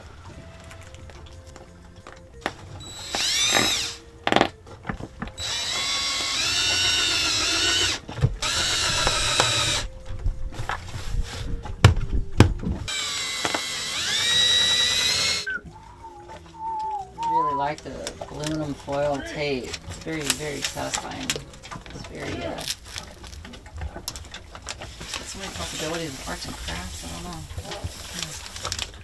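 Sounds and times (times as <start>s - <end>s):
cordless drill motor whining: 2.8s - 4.5s, 5.4s - 9.9s, 12.9s - 15.6s.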